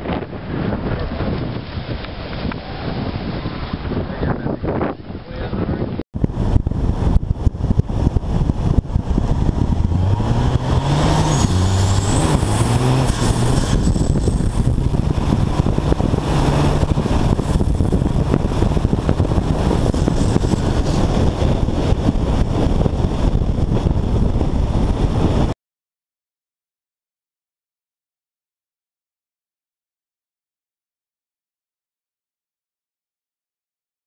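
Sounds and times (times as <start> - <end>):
wind buffeting microphone: 0.0 - 25.6
diesel truck engine revving: 7.4 - 23.1.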